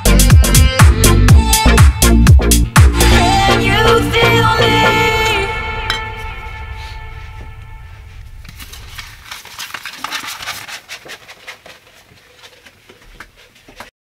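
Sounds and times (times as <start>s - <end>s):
background music: 0.0s - 9.0s.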